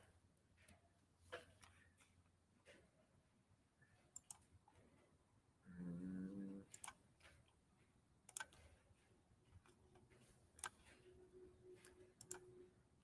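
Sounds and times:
computer mouse clicks: 4.1s - 4.5s, 6.7s - 7.6s, 8.3s - 8.8s, 10.6s - 11.0s, 11.8s - 12.5s.

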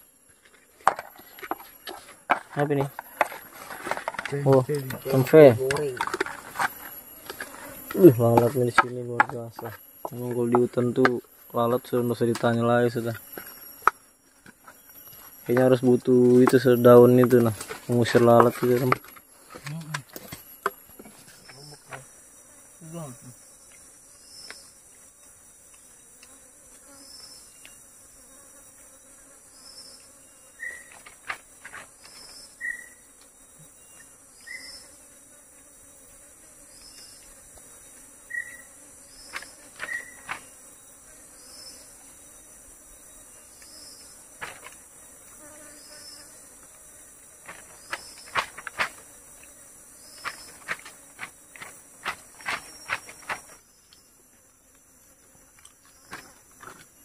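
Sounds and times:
forest insects chorus: 0.0s - 57.0s
lower chirps: 32.0s - 34.9s.

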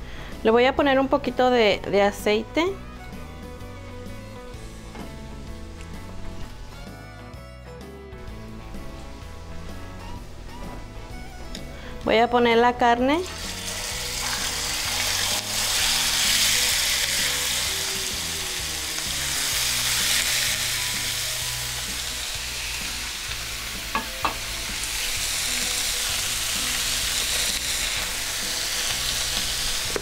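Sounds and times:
meat sizzling in hot oil: 13.2s - 30.0s.

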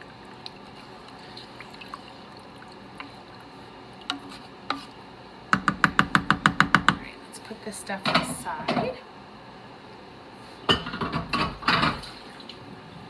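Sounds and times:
liquid sloshing while stirred: 0.0s - 5.0s
spoon knocking against metal pot: 5.5s - 7.0s.

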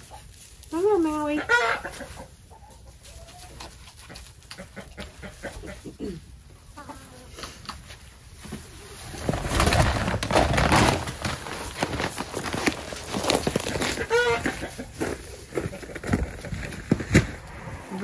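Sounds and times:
chickens clucking: 0.0s - 9.5s, 12.7s - 18.0s
rustling crackling with small clicks: 9.0s - 14.1s.

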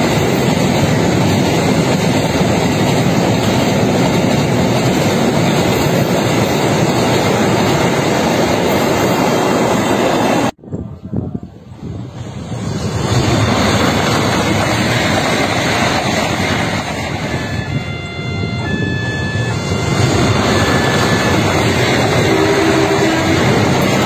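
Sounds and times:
train rumbling on rails: 0.0s - 24.0s
short steady tone: 17.3s - 21.6s.

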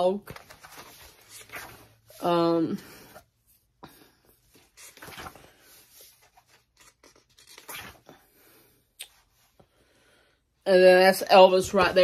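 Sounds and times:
paper pages rustling: 0.1s - 2.2s, 4.5s - 8.1s.

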